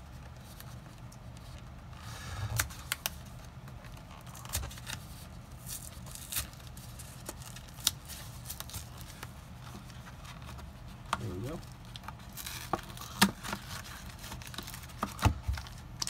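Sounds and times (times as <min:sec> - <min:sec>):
wrapper crinkling: 0:02.9 - 0:10.5
booster pack being torn open: 0:05.6 - 0:09.2.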